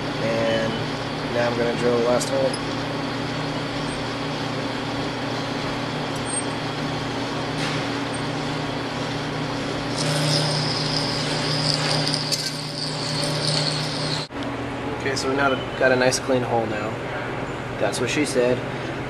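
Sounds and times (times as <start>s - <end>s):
lathe motor and gear hum: 0.0s - 15.1s
high drill cutting whine: 9.8s - 14.3s.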